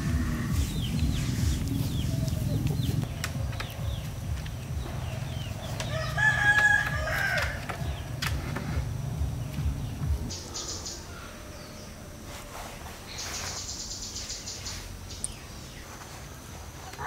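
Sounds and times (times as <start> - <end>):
low rumble: 0.0 - 5.7, 7.8 - 10.3
rooster crowing: 5.6 - 8.1.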